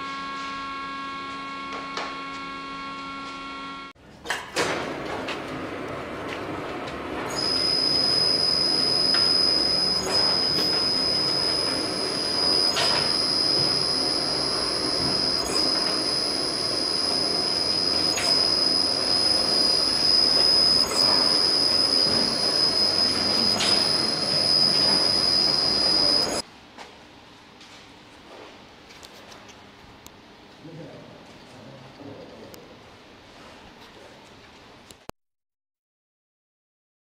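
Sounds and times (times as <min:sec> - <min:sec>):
bar twisting machine whine: 0:05.2 - 0:26.4.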